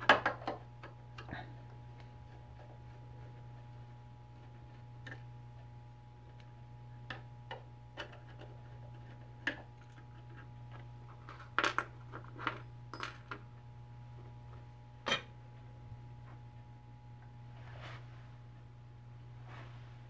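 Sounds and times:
steady low hum: 0.0s - 20.0s
metallic clinks and taps: 12.9s - 13.4s.

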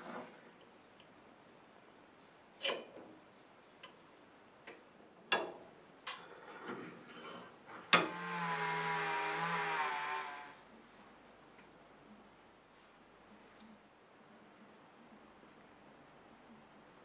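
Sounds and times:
rotary tool whining: 8.0s - 10.6s.

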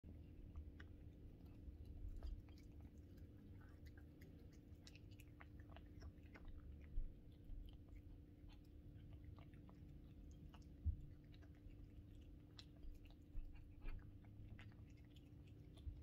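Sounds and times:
kitten chewing and licking: 0.0s - 16.0s
steady low hum: 0.0s - 16.0s.

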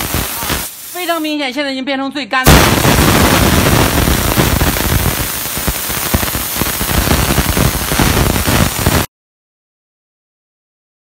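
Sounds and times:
steam jet hissing: 0.0s - 1.4s, 2.5s - 9.1s
irregular crackle: 2.5s - 9.1s.

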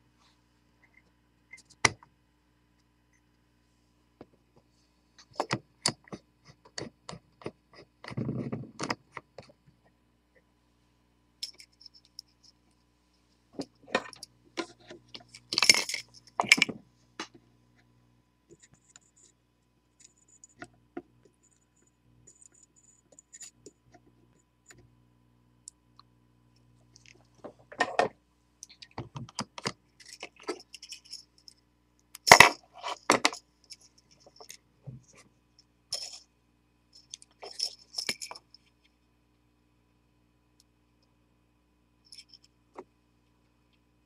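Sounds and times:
metallic clicks of small parts: 11.4s - 12.6s, 13.9s - 17.3s, 28.6s - 34.6s, 35.9s - 36.3s, 37.0s - 38.7s, 42.1s - 42.6s.

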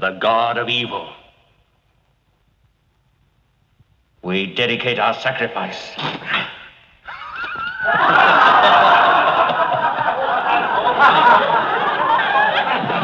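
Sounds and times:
crowd laughing: 7.0s - 13.0s.

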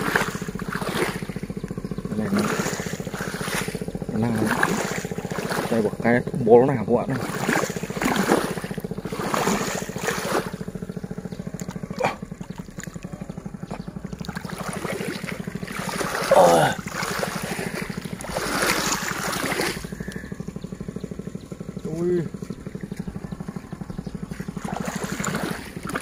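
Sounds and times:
hands splashing in muddy water: 0.0s - 6.0s, 7.1s - 10.6s, 11.4s - 20.3s, 24.2s - 26.0s
low engine hum: 0.0s - 26.0s.

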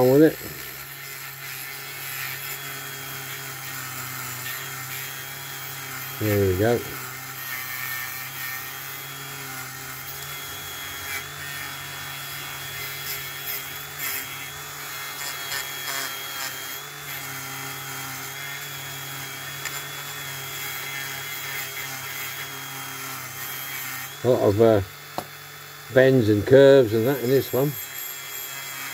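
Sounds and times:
rotary tool motor whine: 0.0s - 28.9s
wire brush scrubbing metal: 26.0s - 28.9s.

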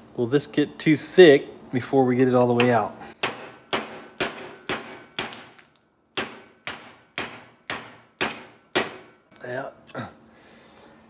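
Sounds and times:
hammer striking steel punch: 2.6s - 9.2s.

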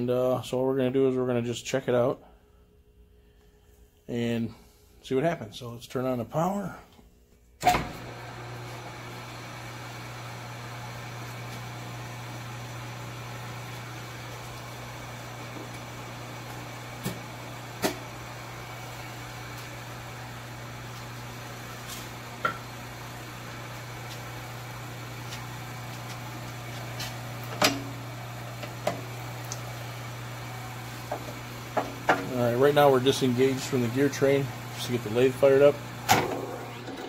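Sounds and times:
lathe humming: 8.0s - 37.0s.

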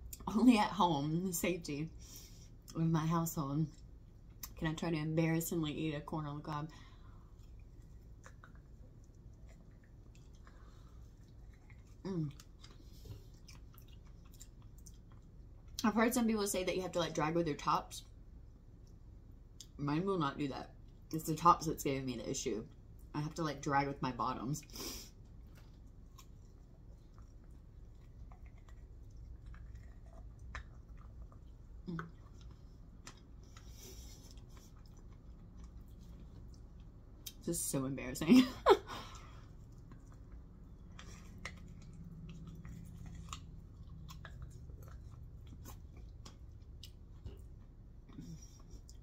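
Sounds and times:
low room hum: 0.0s - 49.0s
chewing with dentures clicking: 6.8s - 15.9s, 18.0s - 19.8s, 25.2s - 37.4s, 39.1s - 49.0s.

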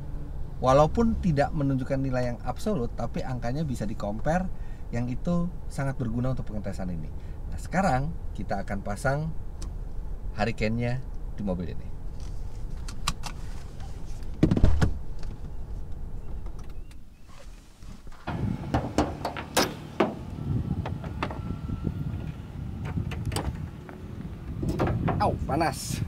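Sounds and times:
car door thump: 14.4s - 15.0s, 18.1s - 21.5s
wind noise: 17.8s - 26.0s.

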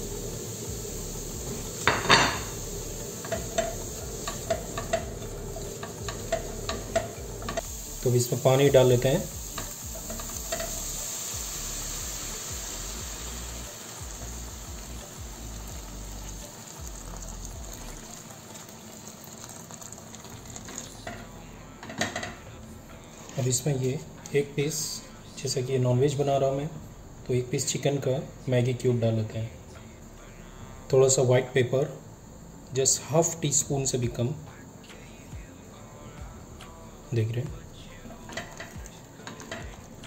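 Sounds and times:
water pouring into pot: 0.0s - 21.3s, 38.3s - 40.0s.

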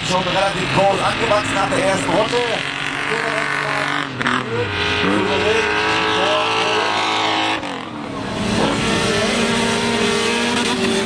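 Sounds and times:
race car engine at high revs: 0.0s - 11.0s.

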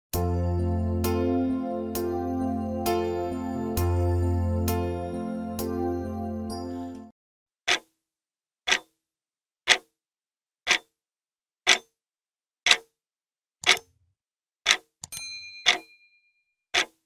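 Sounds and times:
wall clock ticking: 7.7s - 7.9s, 8.7s - 8.9s, 9.7s - 9.9s, 10.7s - 10.9s, 11.7s - 11.9s, 12.7s - 12.9s, 13.6s - 13.9s, 14.7s - 15.0s, 15.7s - 15.9s, 16.7s - 17.0s
short ringing ding: 15.1s - 16.3s.

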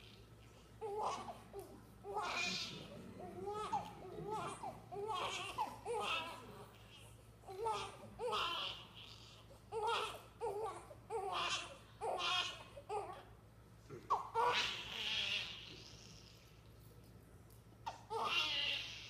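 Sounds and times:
baby crying: 3.3s - 6.7s, 7.5s - 13.3s, 14.1s - 16.4s, 17.9s - 19.0s.

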